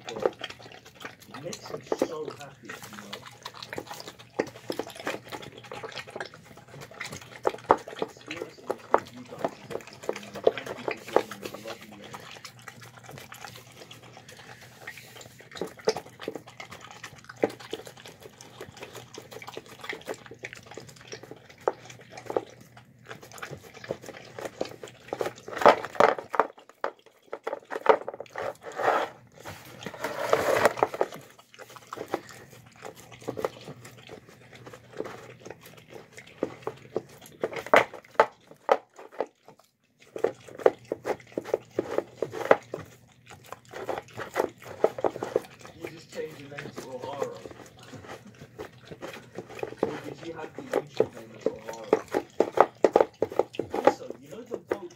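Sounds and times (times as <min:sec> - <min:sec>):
dog chewing and slurping: 0:00.0 - 0:54.9
dog gulping: 0:00.0 - 0:54.9
dog licking plastic bowl: 0:00.0 - 0:54.9.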